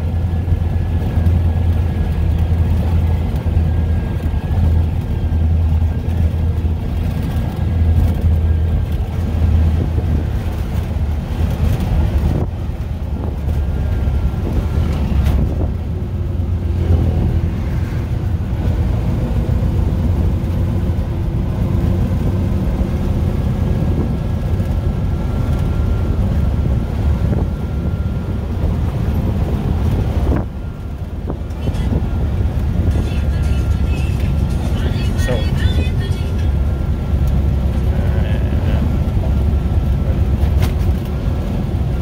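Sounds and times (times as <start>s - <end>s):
road and wind rumble: 0.0s - 42.0s.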